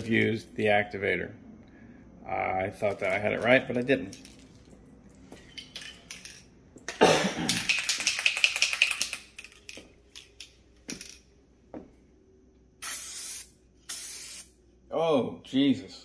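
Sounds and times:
aerosol can ball rattling: 0:07.5 - 0:10.5.

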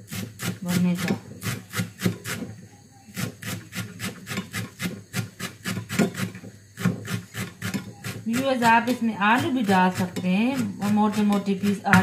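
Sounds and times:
knife chopping on cutting board: 0:00.1 - 0:02.5.

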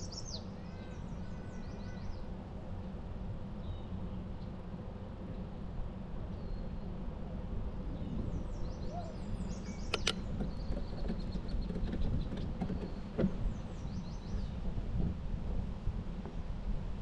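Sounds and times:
bird singing: 0:00.0 - 0:02.3, 0:06.3 - 0:07.0, 0:08.0 - 0:14.7
bicycle tyres and wind rumble: 0:00.0 - 0:17.0
sharp click: 0:09.9 - 0:10.3.

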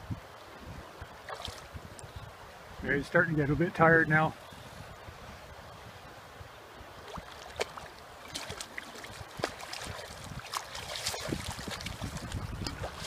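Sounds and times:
fish splashing at water surface: 0:07.1 - 0:13.0.

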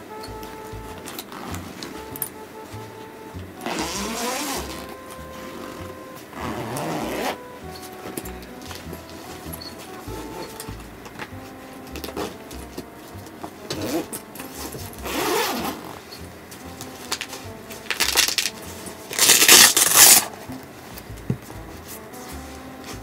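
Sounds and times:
zipper on fabric bag: 0:01.0 - 0:02.2, 0:03.6 - 0:07.4, 0:12.0 - 0:12.4, 0:13.7 - 0:16.0, 0:17.0 - 0:20.4.

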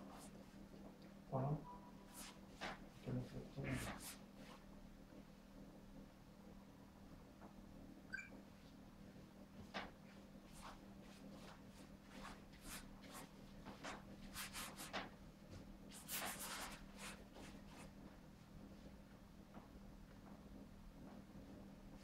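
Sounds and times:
faint steady hum: 0:00.0 - 0:22.0
paintbrush swishing on canvas: 0:02.0 - 0:04.7, 0:10.1 - 0:15.1, 0:15.9 - 0:17.9.

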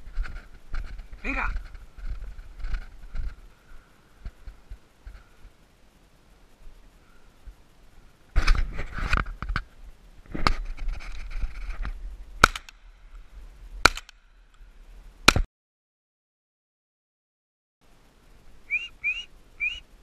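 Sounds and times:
scuffling rustling noise: 0:00.0 - 0:03.6, 0:08.3 - 0:12.3
shotgun shots: 0:12.4 - 0:12.7, 0:13.8 - 0:14.1.

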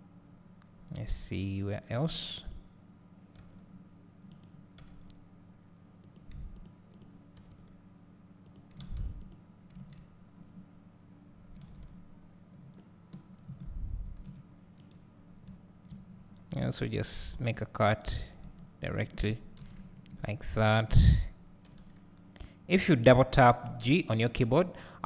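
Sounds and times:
steady low hum: 0:00.0 - 0:25.0
computer mouse and keyboard clicks: 0:03.3 - 0:05.2, 0:06.0 - 0:07.8, 0:08.4 - 0:10.2, 0:11.5 - 0:16.6, 0:19.6 - 0:20.3, 0:21.6 - 0:22.1
soft low thumps: 0:13.6 - 0:14.3.

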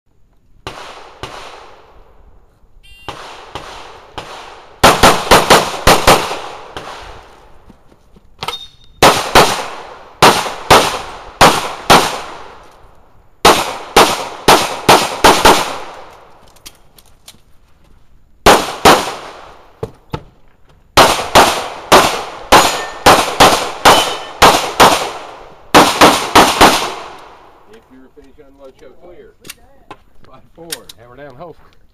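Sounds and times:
pistol shots with echo: 0:00.6 - 0:02.0, 0:03.0 - 0:07.1, 0:09.0 - 0:12.6, 0:13.4 - 0:16.1, 0:18.4 - 0:19.6, 0:21.0 - 0:27.5.

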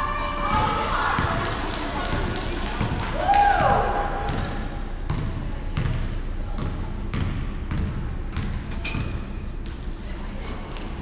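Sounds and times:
basketball bouncing on wooden floor: 0:05.1 - 0:06.0, 0:06.6 - 0:09.8
sneakers squeaking on floor: 0:05.1 - 0:06.1, 0:07.1 - 0:11.0.

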